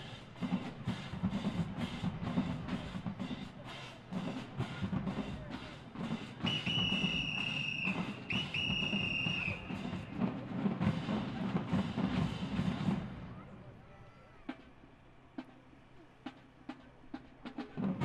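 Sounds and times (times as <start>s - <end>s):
drumline beating: 0.0s - 13.9s, 14.5s - 18.0s
long whistle blasts: 6.4s - 10.0s.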